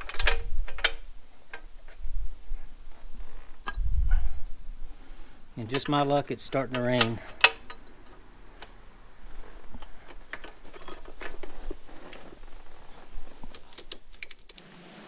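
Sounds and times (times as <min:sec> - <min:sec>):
metal parts clinking: 0:00.0 - 0:00.9, 0:09.8 - 0:11.7.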